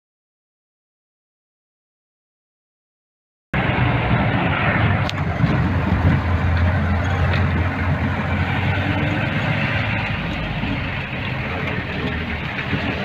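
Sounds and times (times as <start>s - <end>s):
car engine droning: 3.6s - 13.0s
road noise: 3.6s - 13.0s.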